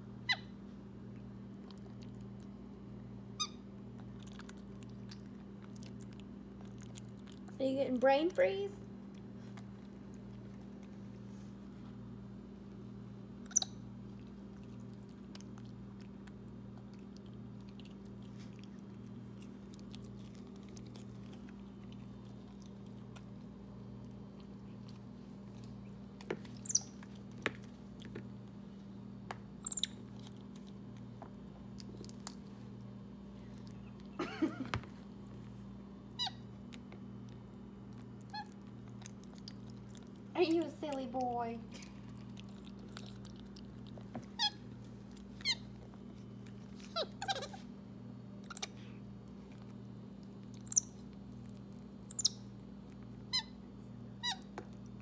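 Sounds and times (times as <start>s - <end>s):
steady low hum: 0.0s - 55.0s
monkey squeaky call: 13.4s - 13.8s, 26.6s - 26.9s, 29.6s - 30.0s, 50.6s - 50.8s, 52.1s - 52.3s
monkey crunching and smacking: 13.5s - 28.4s, 29.6s - 32.7s, 36.4s - 40.3s, 41.7s - 47.6s.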